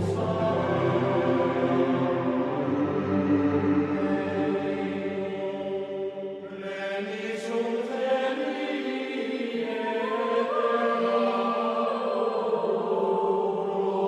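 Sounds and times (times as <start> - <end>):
choir chanting held notes: 0.0 - 14.0.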